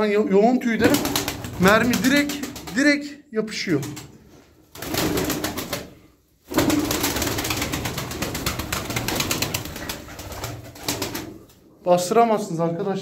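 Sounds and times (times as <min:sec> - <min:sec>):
pigeon wing beats: 0:00.8 - 0:02.8, 0:04.8 - 0:05.9, 0:06.5 - 0:11.4.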